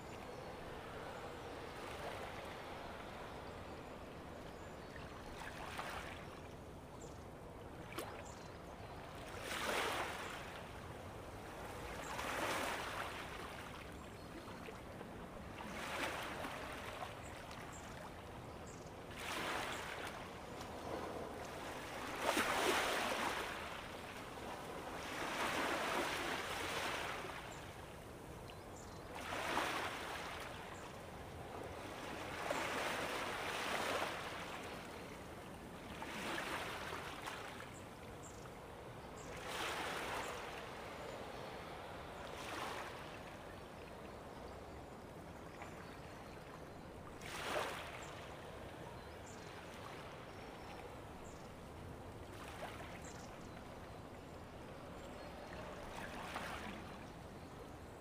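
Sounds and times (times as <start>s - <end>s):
ocean waves washing in: 0.0s - 6.4s.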